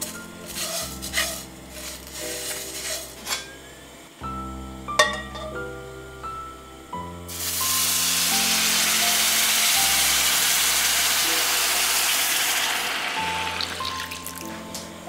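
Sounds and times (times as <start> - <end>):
stock sizzling in hot pan: 0.0 - 3.5, 7.3 - 14.5
soft background music: 0.0 - 15.0.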